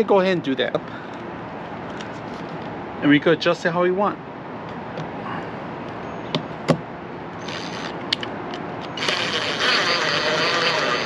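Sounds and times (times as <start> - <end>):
cordless driver driving screw: 7.4 - 11.0.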